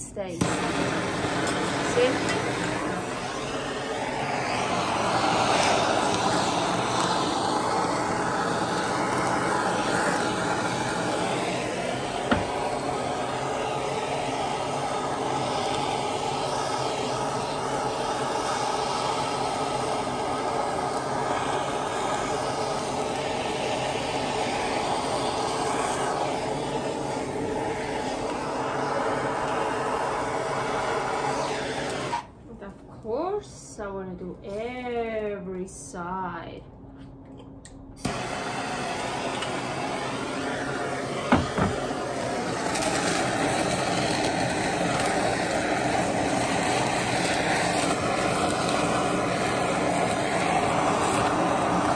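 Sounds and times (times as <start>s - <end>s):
gas torch flame roaring: 0.0s - 36.2s, 38.0s - 51.9s.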